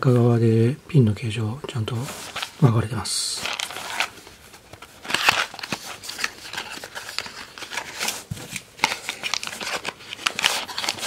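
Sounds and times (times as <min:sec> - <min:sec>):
cardboard scraping and rubbing: 0:02.0 - 0:02.6, 0:03.4 - 0:11.0.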